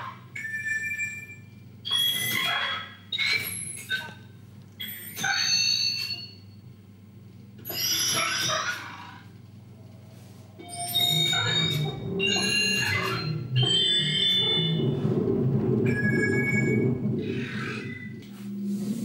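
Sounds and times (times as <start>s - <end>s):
low pulsing rumble: 9.5s - 19.0s
bright high electronic tones: 10.6s - 18.3s.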